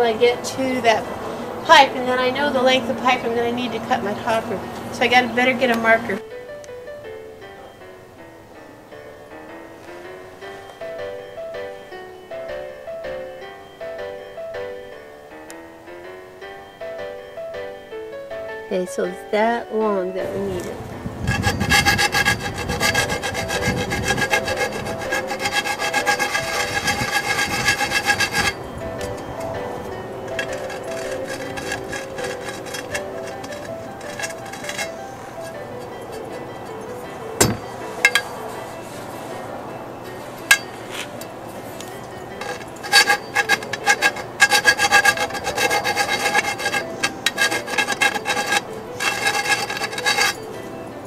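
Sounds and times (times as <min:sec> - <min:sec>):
background music: 0:00.0 - 0:51.0
hand tool rasping on copper pipe: 0:20.5 - 0:38.4, 0:40.5 - 0:40.8, 0:41.8 - 0:50.6.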